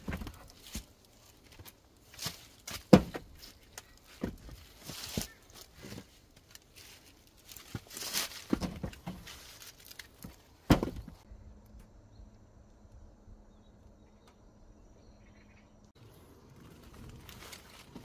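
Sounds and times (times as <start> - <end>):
logs knocking and scraping: 0.0 - 11.3, 16.0 - 18.0
wooden clunk: 10.7 - 11.2.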